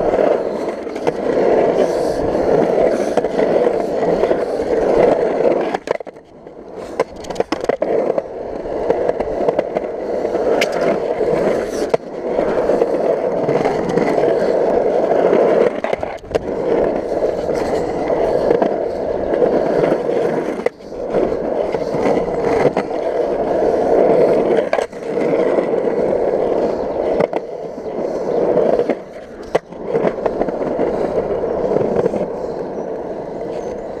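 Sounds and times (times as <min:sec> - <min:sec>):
skateboard clacks: 0:00.0 - 0:34.0
skateboard wheels rolling on concrete: 0:00.0 - 0:34.0.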